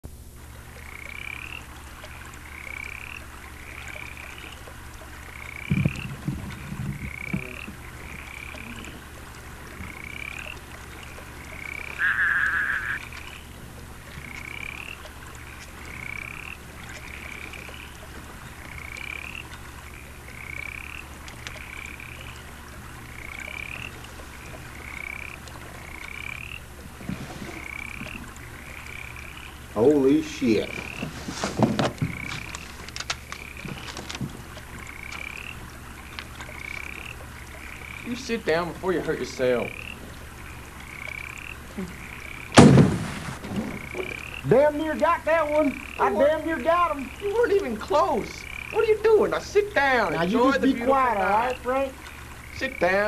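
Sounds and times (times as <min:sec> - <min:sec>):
steady low hum: 0:00.0 - 0:53.0
frogs peeping: 0:00.2 - 0:53.0
low thumps: 0:05.6 - 0:08.8, 0:42.5 - 0:45.2.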